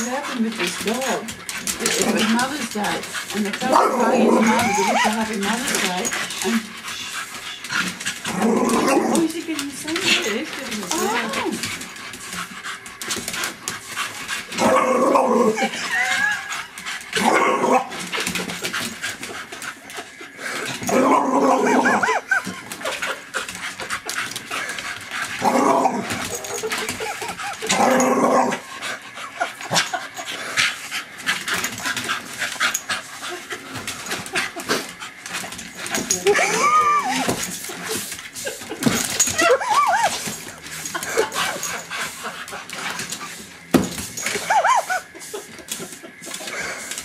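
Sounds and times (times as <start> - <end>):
dog panting: 0.0 - 8.3, 9.2 - 14.6, 18.1 - 20.8, 22.1 - 25.4, 28.6 - 47.0
dog growling and barking: 0.0 - 12.5, 13.1 - 19.3, 20.0 - 37.9.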